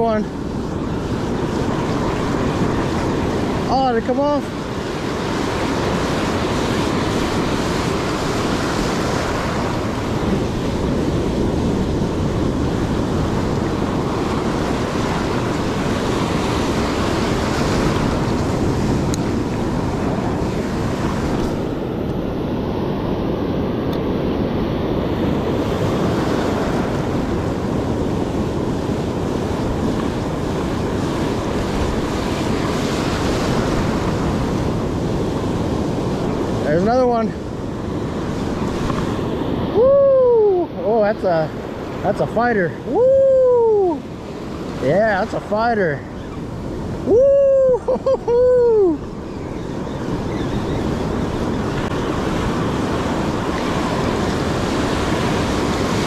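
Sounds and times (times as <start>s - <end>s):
ocean surf breaking: 0.0s - 56.0s
wind rumbling on microphone: 0.0s - 56.0s.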